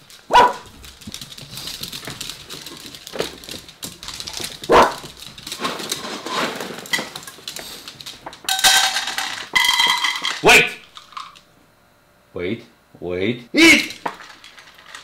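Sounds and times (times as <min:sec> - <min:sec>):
dog barking: 0:00.3 - 0:00.7, 0:04.7 - 0:05.0, 0:10.4 - 0:10.8.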